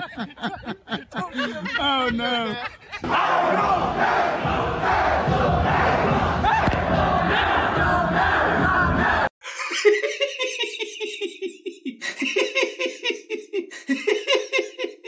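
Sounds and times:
person laughing: 0.0s - 3.1s, 9.4s - 15.0s
crowd shouting: 3.0s - 9.3s.

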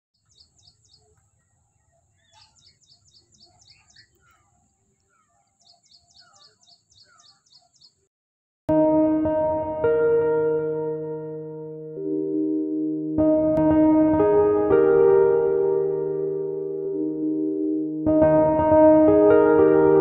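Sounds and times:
high repeated bird chirps: 0.2s - 1.2s, 1.8s - 8.1s
lower bird calls: 0.2s - 8.0s.

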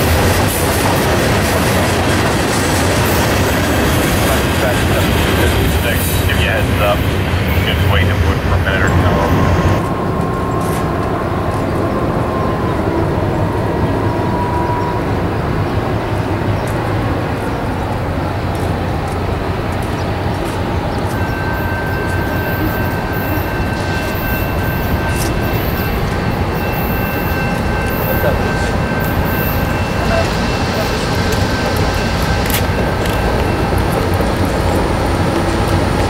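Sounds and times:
diesel locomotives running: 0.0s - 36.0s
faint high squeal: 20.9s - 32.4s.

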